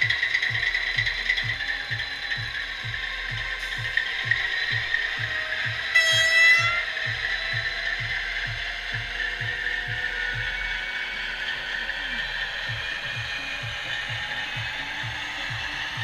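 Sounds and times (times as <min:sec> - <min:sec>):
steady mechanical clicking: 0:00.0 - 0:16.0
locomotive horn blast: 0:05.2 - 0:07.1.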